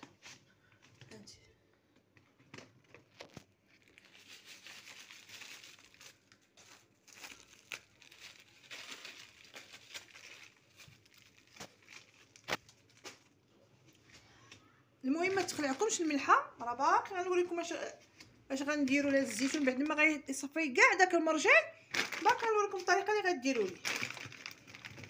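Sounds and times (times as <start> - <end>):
plastic bag crinkling: 2.8 - 14.1, 15.1 - 16.5, 18.8 - 20.2, 21.3 - 25.0.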